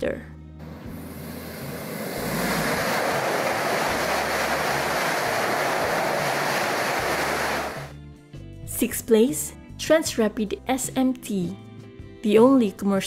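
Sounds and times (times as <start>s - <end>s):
high-speed train passing: 0.6s - 7.9s.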